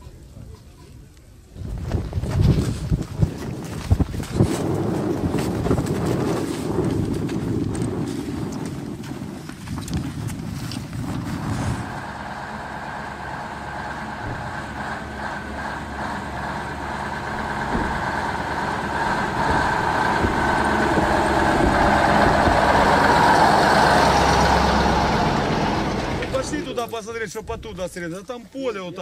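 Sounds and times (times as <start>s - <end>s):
truck engine driving past: 11.3s - 28.1s.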